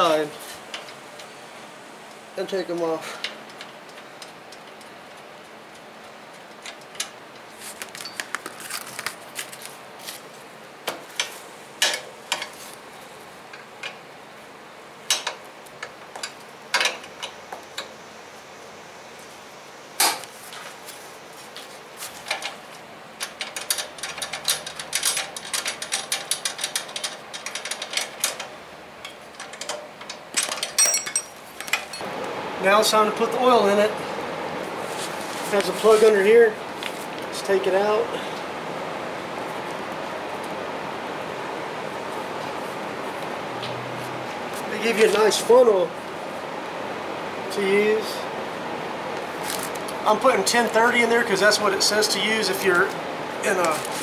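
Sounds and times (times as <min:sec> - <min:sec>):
hand tools clicking on metal: 0:23.2 - 0:32.0.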